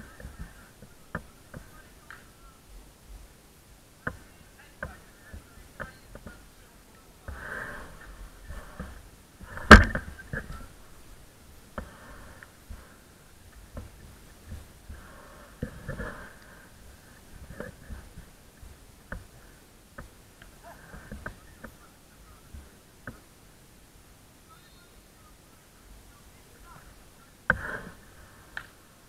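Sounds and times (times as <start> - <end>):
football kicks: 9.6 - 10.6.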